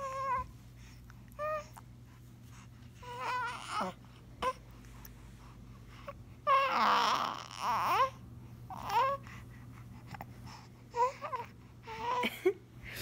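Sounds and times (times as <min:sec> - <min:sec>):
baby crying: 0:03.0 - 0:04.6, 0:06.5 - 0:09.2.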